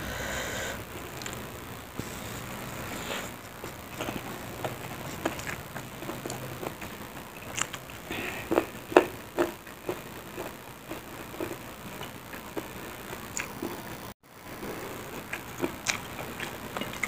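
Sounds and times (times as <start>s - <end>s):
person chewing wetly: 3.1s - 13.8s, 15.1s - 17.0s.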